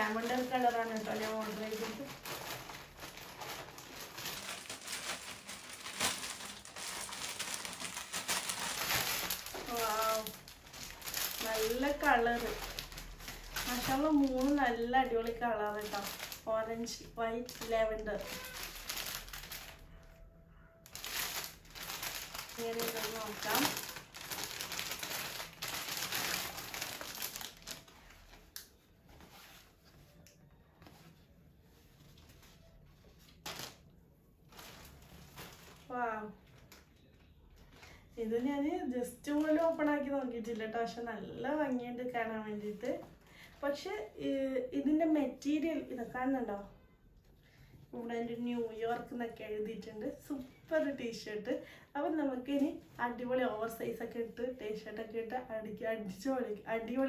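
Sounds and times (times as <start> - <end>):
plastic packaging crinkling: 0.0 - 20.1, 20.9 - 29.6, 33.2 - 37.0.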